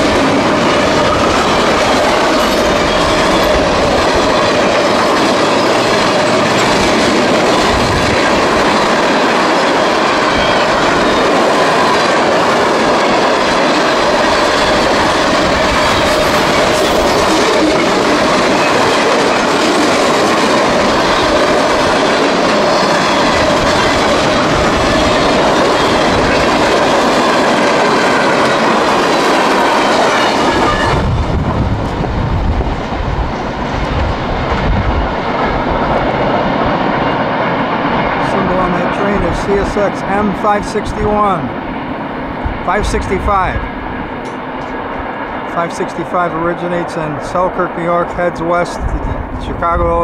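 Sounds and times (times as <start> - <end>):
wheels squealing: 0.0 - 31.1
train wheels clattering on rails: 0.0 - 40.4.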